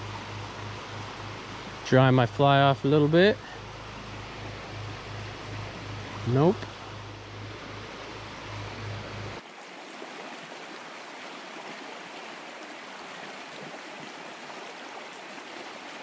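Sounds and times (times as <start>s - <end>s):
stream rushing over stones: 0.0s - 4.4s, 9.3s - 16.0s
low hum: 0.0s - 9.4s.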